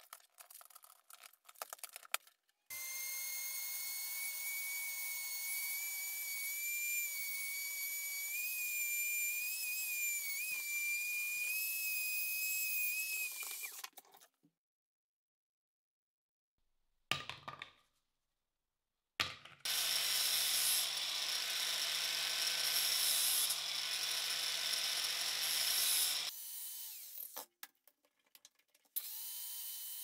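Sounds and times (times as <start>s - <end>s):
rotary tool grinding steel: 19.7s - 27.4s.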